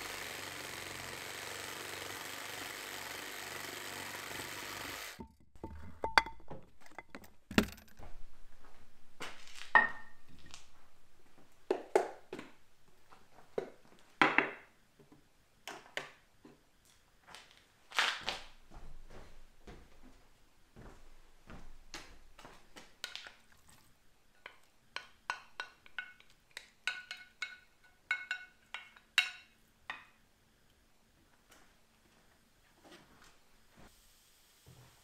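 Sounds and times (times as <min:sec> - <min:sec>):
power tool running: 0:00.0 - 0:05.2
kitchenware clinking: 0:09.8 - 0:10.3, 0:24.4 - 0:30.1.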